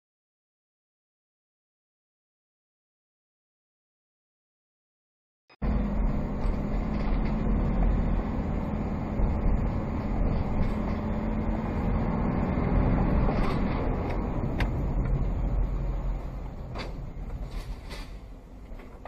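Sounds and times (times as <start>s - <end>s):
engine hum: 5.6s - 19.0s
road rumble: 5.6s - 19.0s.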